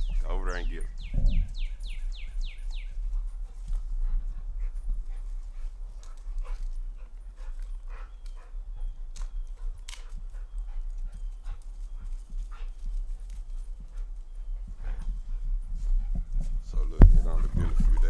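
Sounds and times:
steady low rumble: 0:00.0 - 0:18.0
light clicks and rustles: 0:05.4 - 0:08.5.

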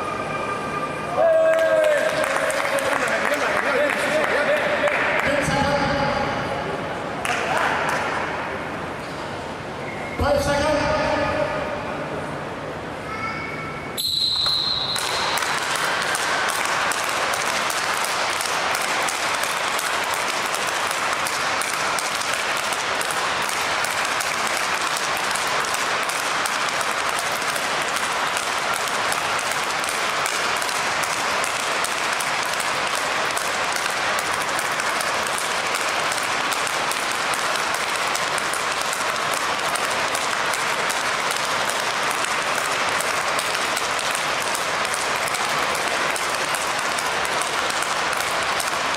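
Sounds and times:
dense patter of sharp claps: 0:01.5 - 0:05.8, 0:14.9 - 0:48.9.

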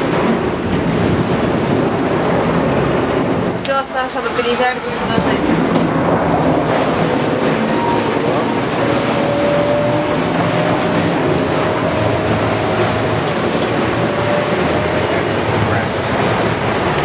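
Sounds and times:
motorboat engine running: 0:00.0 - 0:17.0
water rushing past hull: 0:00.0 - 0:17.0
wind on microphone: 0:00.0 - 0:17.0
thin engine whine: 0:04.4 - 0:17.0.

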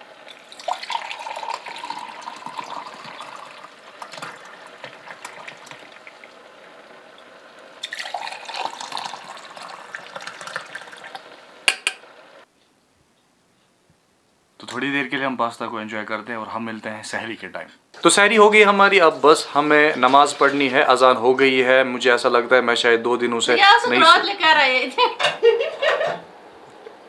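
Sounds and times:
liquid pouring through metal strainer: 0:00.3 - 0:06.2, 0:07.8 - 0:11.2.

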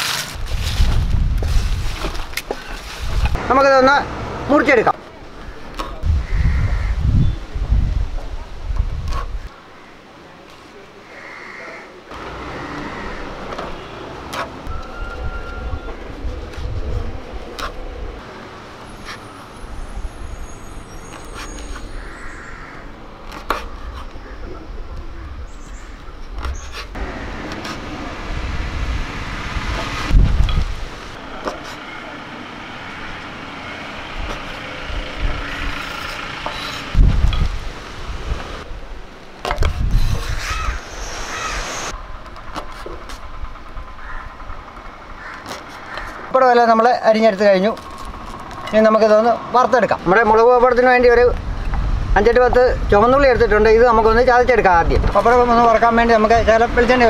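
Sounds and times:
distant traffic hum: 0:02.0 - 0:08.8, 0:09.4 - 0:57.0
steady low rumble: 0:24.6 - 0:31.4.

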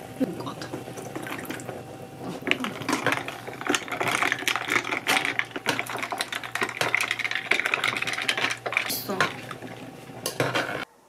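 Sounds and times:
ice cubes clinking in glass: 0:02.4 - 0:10.8.

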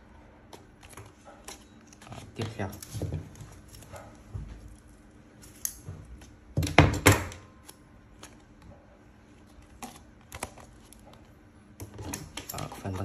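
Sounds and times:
plastic and paper rustling: 0:00.6 - 0:05.1.

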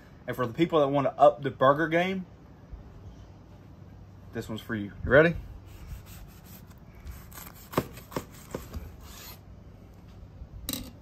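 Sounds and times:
knife sawing through burger: 0:05.7 - 0:09.4.

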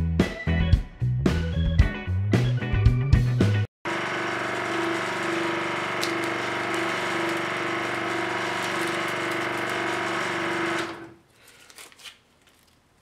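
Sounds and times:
scroll saw running: 0:03.8 - 0:11.2.

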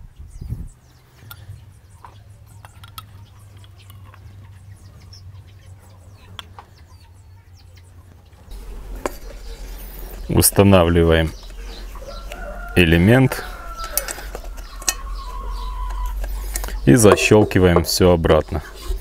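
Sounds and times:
low hum: 0:08.5 - 0:12.4, 0:13.5 - 0:19.0
faint bird chirps: 0:13.4 - 0:18.7
plastic parts clicking and tapping: 0:13.8 - 0:17.3.

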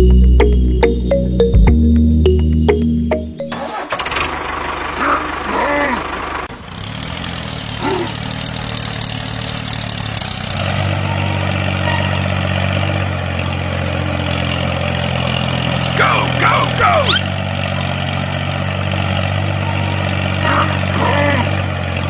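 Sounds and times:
tractor engine running: 0:00.0 - 0:22.0
short squeaky glides: 0:10.8 - 0:13.0, 0:17.0 - 0:18.0, 0:19.4 - 0:20.4.

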